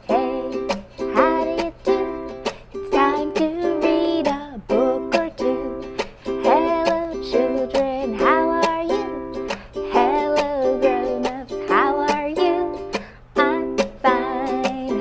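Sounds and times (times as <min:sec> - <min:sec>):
ukulele strumming: 0:00.0 - 0:15.0
woman singing: 0:00.0 - 0:15.0.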